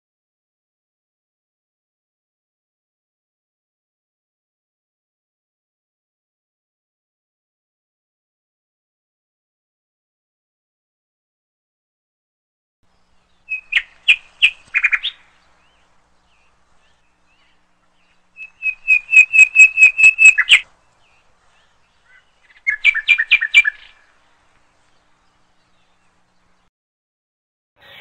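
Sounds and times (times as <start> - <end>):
songbird chirping: 12.8 - 26.7.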